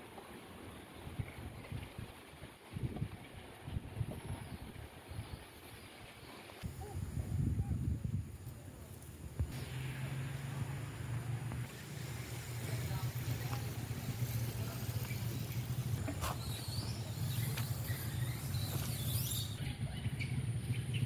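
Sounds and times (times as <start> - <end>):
distant road traffic rumble: 8.4 - 21.0.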